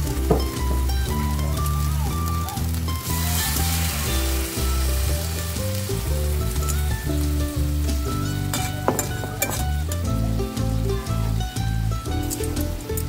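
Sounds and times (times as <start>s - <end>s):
background music: 0.0s - 13.0s
meat sizzling in a pan: 0.0s - 13.0s
spatula stirring: 8.1s - 10.1s.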